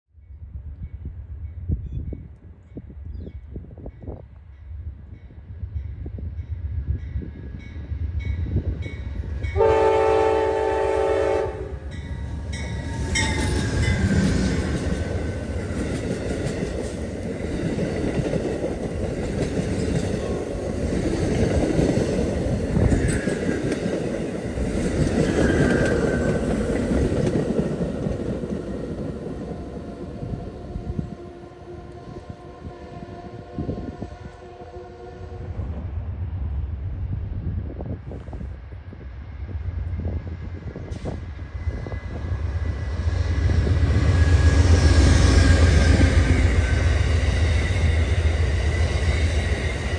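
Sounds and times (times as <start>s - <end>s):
train wheels rumbling on rails: 0.4s - 34.4s, 35.3s - 49.9s
train horn: 9.4s - 12.5s, 30.2s - 35.9s.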